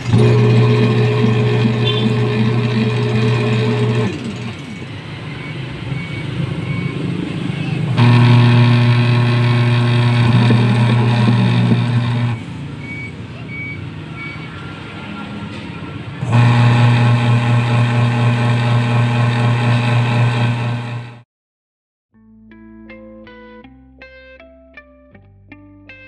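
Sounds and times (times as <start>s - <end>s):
washing machine motor humming: 0.0s - 6.8s, 7.9s - 12.5s, 16.2s - 21.2s.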